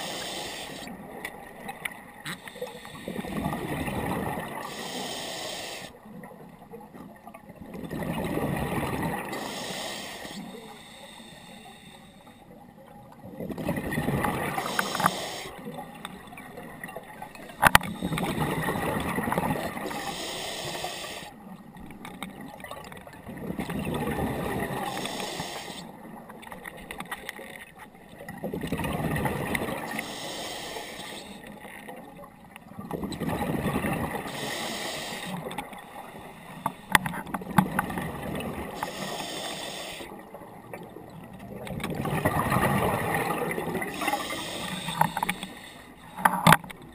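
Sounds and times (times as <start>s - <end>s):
regulator hissing inhale: 0.0s - 1.0s, 2.3s - 3.4s, 4.6s - 6.0s, 9.2s - 12.5s, 14.5s - 15.7s, 19.8s - 21.4s, 24.8s - 25.9s, 29.9s - 31.5s, 34.2s - 37.1s, 38.7s - 40.2s, 43.9s - 46.2s.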